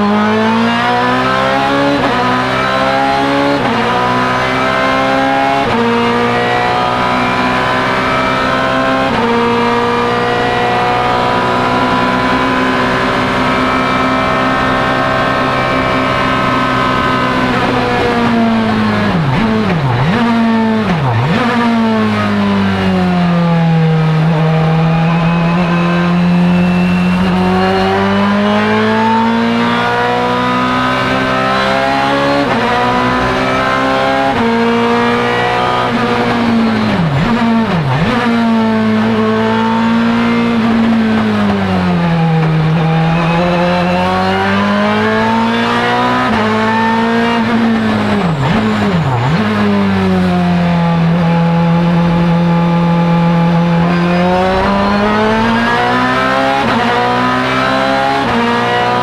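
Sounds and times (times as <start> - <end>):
racing car engine at full pace: 0.0 - 59.0.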